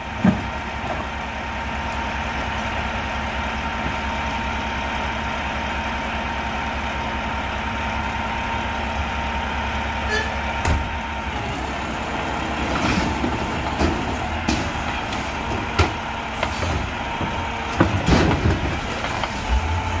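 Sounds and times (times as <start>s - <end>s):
garbage truck engine drone: 0.0s - 20.0s
trash cart bangs and clatters: 10.6s - 20.0s.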